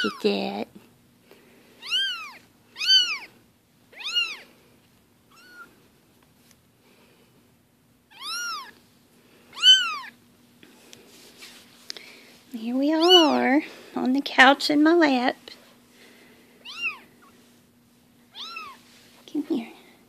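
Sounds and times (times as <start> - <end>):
kittens mewing: 1.8 - 4.6, 5.3 - 5.8, 8.1 - 8.8, 9.5 - 10.2, 13.0 - 13.4, 16.6 - 17.3, 18.3 - 18.8.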